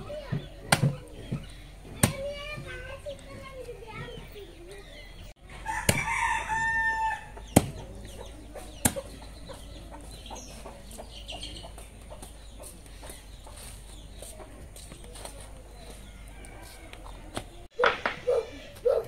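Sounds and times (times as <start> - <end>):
rooster crowing: 5.6 - 7.3.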